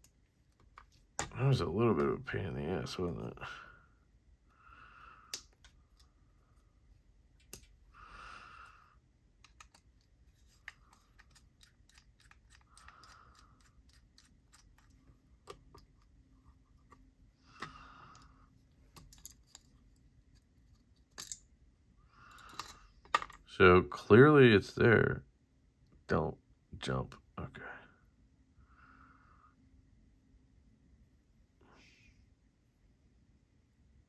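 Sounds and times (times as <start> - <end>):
small metal tools clicking: 10.8 - 14.9, 21.1 - 21.4.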